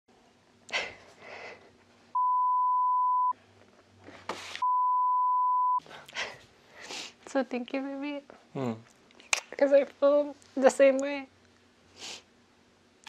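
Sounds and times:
censor bleeps: 0:02.2 - 0:03.4, 0:04.6 - 0:05.8.

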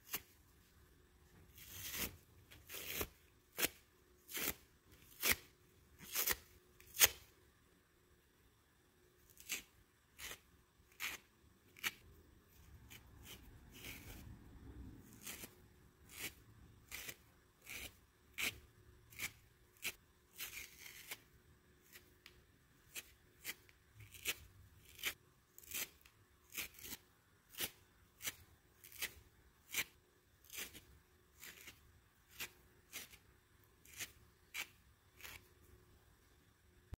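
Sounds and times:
sponge tearing: 0:01.5 - 0:07.3, 0:15.0 - 0:22.0, 0:33.8 - 0:35.5.

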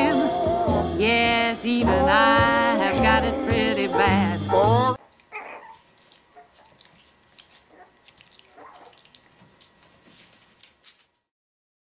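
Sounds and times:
puppies squeaking and whimpering: 0:04.0 - 0:06.6.

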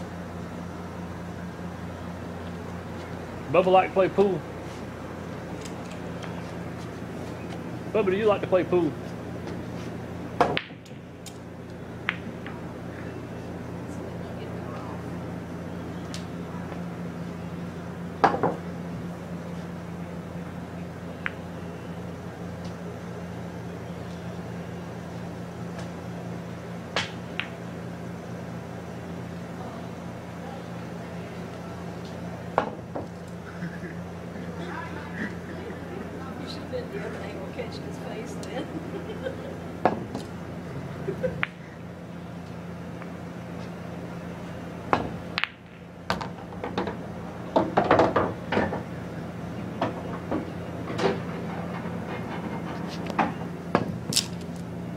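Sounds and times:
low room hum: 0:00.0 - 0:54.9
pool balls clacking: 0:10.4 - 0:11.4, 0:44.9 - 0:48.9
pool balls rolling and knocking: 0:44.8 - 0:54.7.

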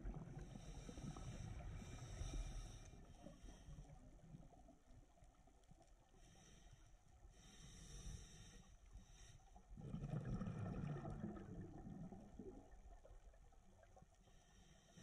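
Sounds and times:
regulator inhale hissing: 0:00.4 - 0:04.0, 0:06.3 - 0:09.6
bubbling exhale: 0:09.8 - 0:12.6.

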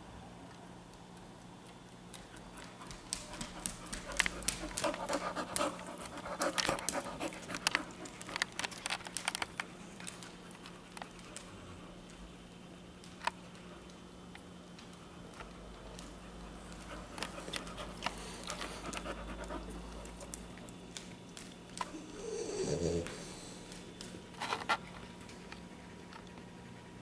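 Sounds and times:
claws clicking on wooden floor: 0:01.2 - 0:11.5, 0:13.0 - 0:26.4
dog panting: 0:02.2 - 0:08.9, 0:16.2 - 0:20.4.

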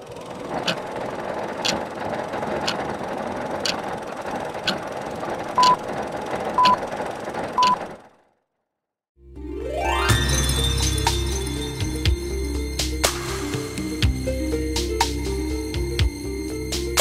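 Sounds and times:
clockwork gears whirring: 0:00.0 - 0:08.4
sharp clock ticks: 0:00.6 - 0:03.9, 0:04.6 - 0:04.9, 0:05.5 - 0:05.8, 0:06.6 - 0:06.9, 0:07.6 - 0:07.9.

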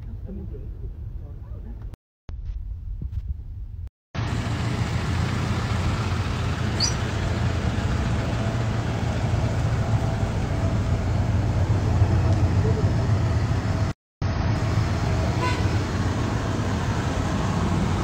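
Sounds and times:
vehicle engines and road noise: 0:04.2 - 0:18.0.

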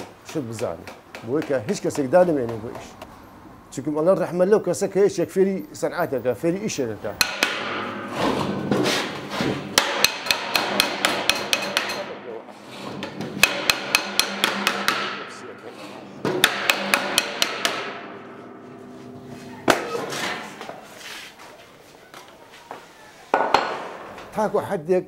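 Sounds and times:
metal cylinder being struck: 0:07.2 - 0:08.2, 0:09.8 - 0:12.2, 0:13.4 - 0:15.4, 0:16.2 - 0:20.6.

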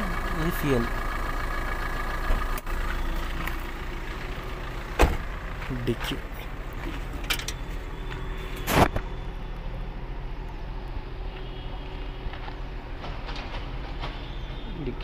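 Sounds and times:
boot lid thump: 0:05.0 - 0:05.3.

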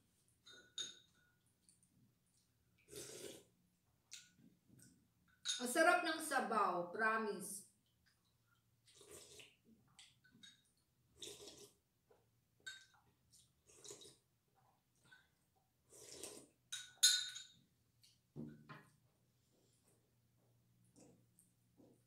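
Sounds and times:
metal spoon clinking on bowl: 0:00.4 - 0:01.3, 0:05.3 - 0:05.7, 0:16.7 - 0:17.6
slurping soup off a spoon: 0:02.8 - 0:03.6, 0:08.8 - 0:09.6, 0:11.1 - 0:11.9, 0:13.4 - 0:14.3, 0:15.8 - 0:16.6.

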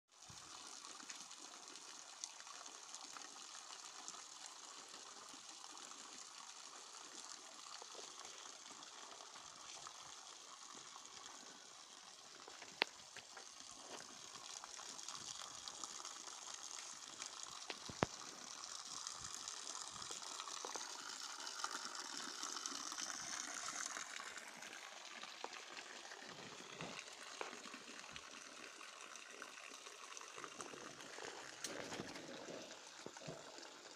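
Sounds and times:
water jetting onto gravel: 0:09.4 - 0:28.2, 0:30.6 - 0:33.6.

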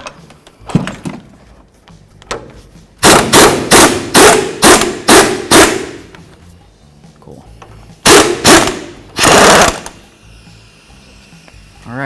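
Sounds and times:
impact wrench hammering: 0:02.2 - 0:06.1, 0:08.0 - 0:10.0.

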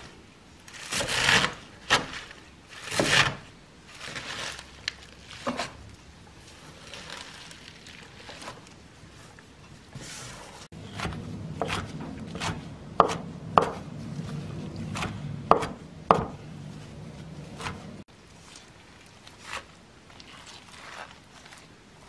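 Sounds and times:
knife chopping on wooden board: 0:10.9 - 0:13.9, 0:14.8 - 0:16.4, 0:17.5 - 0:18.0.

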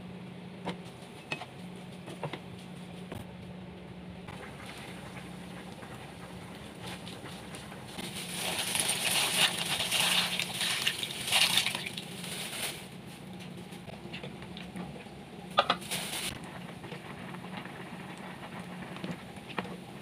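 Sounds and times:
steady low hum: 0:00.0 - 0:20.0
dry pasta pattering into a pot: 0:08.0 - 0:12.9.

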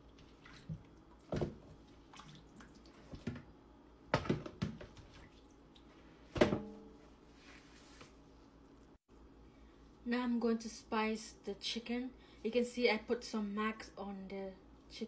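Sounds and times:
water splashing and dripping: 0:00.0 - 0:03.4, 0:04.9 - 0:05.9.

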